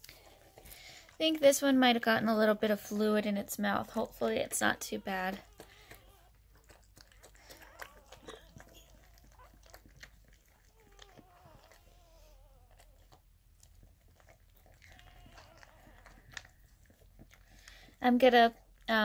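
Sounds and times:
puppy whining faintly: 4.6 - 18.0
dog licking wetly: 5.0 - 12.2.

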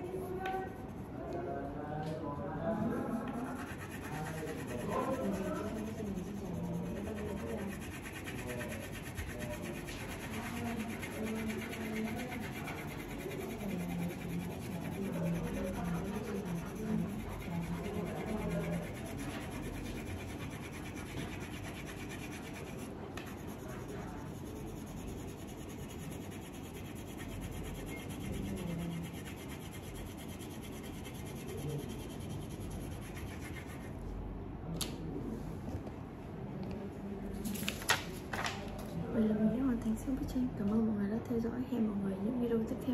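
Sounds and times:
crayon scratching on paper: 2.7 - 34.0.

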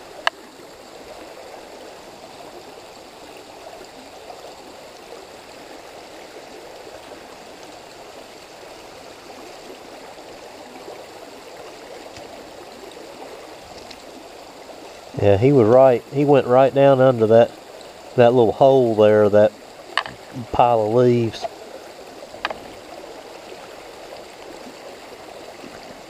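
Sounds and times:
creek flowing over stones: 0.0 - 26.0.

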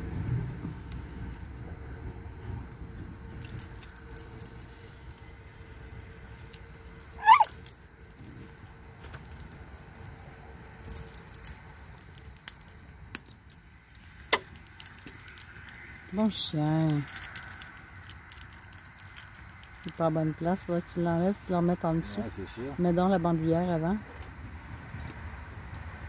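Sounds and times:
dog tags jingling: 6.5 - 7.8, 14.3 - 20.6
loud high squeak: 7.2 - 7.6.

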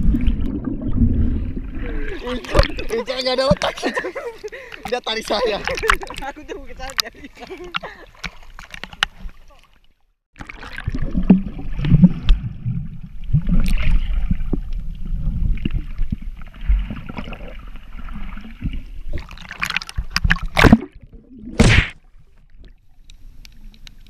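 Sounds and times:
rushing water splashes: 0.0 - 9.8, 10.4 - 14.6
underwater sloshing and gurgling: 0.0 - 24.0.

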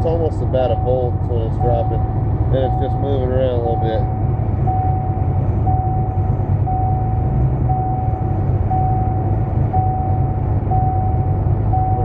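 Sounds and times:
car engine idling: 0.0 - 12.0
thin beeping tone: 2.6 - 12.0.

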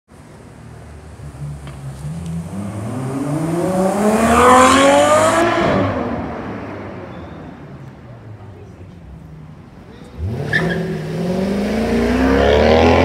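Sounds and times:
sports car accelerating hard: 1.2 - 7.0, 10.2 - 13.0.

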